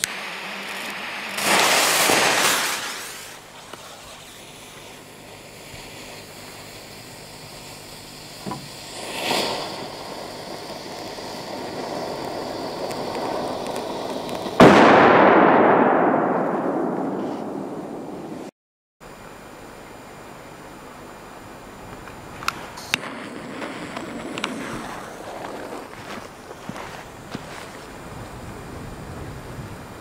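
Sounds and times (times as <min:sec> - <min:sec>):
firecracker fuse hissing: 0:00.0 - 0:15.1, 0:22.3 - 0:29.9
firecracker bang with echo: 0:01.1 - 0:03.4, 0:14.4 - 0:18.5.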